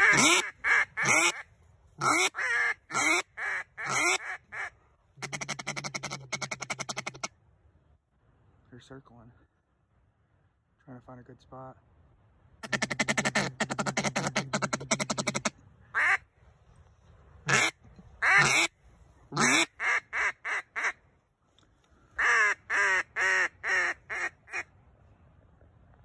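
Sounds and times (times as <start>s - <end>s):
duck call quacks: 0.0s - 7.3s, 12.6s - 16.2s, 17.5s - 18.7s, 19.3s - 21.0s, 22.2s - 24.7s.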